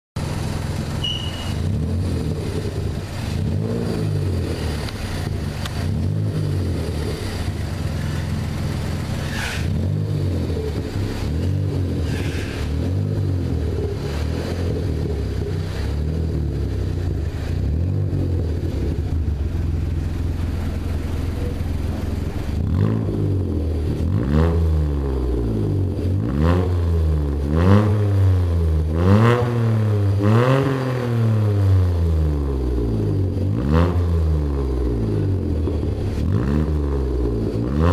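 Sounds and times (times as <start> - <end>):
car engine revving: 0.2 - 37.9.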